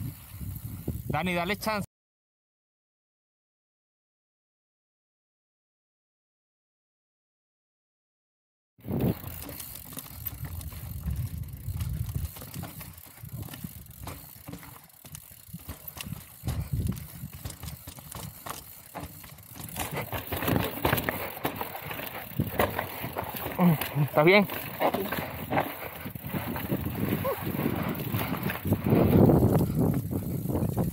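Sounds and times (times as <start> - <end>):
bike tyres on dirt: 0.0 - 1.6, 8.8 - 30.9
bike chain and frame rattling: 8.8 - 30.9.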